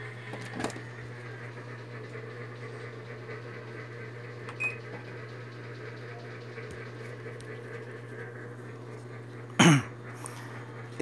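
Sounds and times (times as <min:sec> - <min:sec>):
washing machine beep: 0:04.5 - 0:05.1, 0:06.0 - 0:06.6.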